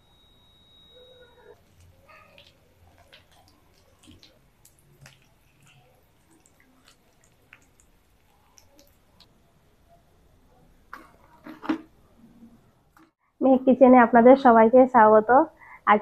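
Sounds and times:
frying oil crackling: 0:01.6 - 0:09.3.

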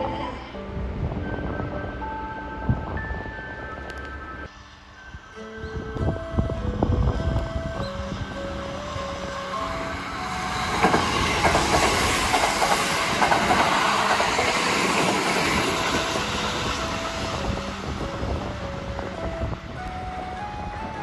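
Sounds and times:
rush of train wheels: 0:08.5 - 0:19.4
clickety-clack of rail joints: 0:10.4 - 0:17.6.

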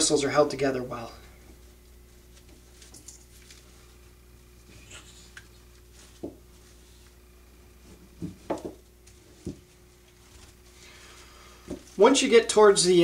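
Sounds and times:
broom handling knocks: 0:06.1 - 0:06.5, 0:07.9 - 0:09.7.

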